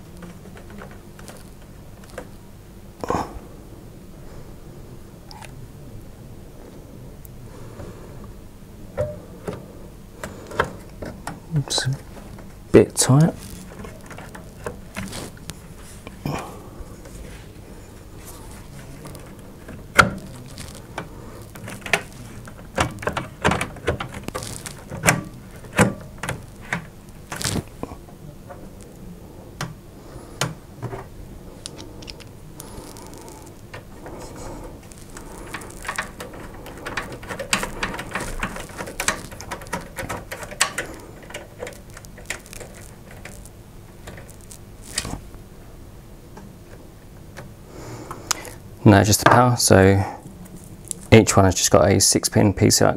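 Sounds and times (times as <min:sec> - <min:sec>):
rustling and light clicking: 0:09.0 - 0:16.2, 0:16.9 - 0:29.0, 0:29.6 - 0:45.4.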